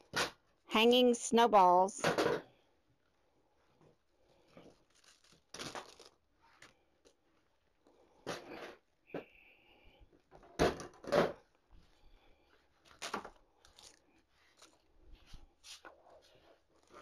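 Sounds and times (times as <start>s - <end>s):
artificial flower stems rustling: 3.0s - 7.9s, 11.5s - 17.0s.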